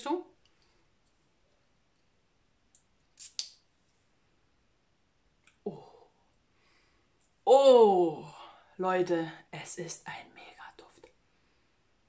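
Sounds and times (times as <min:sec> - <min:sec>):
perfume atomizer spraying: 0:03.1 - 0:03.6.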